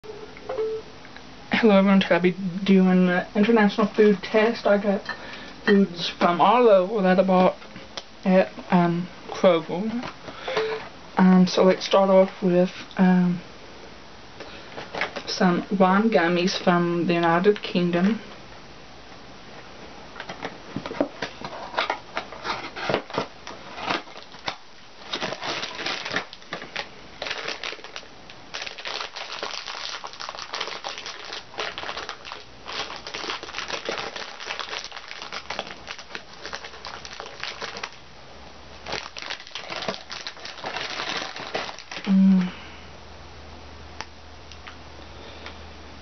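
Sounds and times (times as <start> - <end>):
plastic wrapper crinkling: 14.8 - 15.3, 20.2 - 38.0, 38.8 - 42.2.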